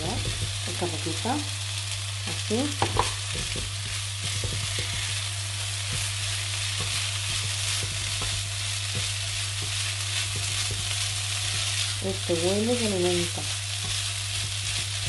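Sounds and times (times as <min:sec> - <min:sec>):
food sizzling in a frying pan: 0:00.0 - 0:15.0
spatula scraping a pan: 0:03.4 - 0:12.0.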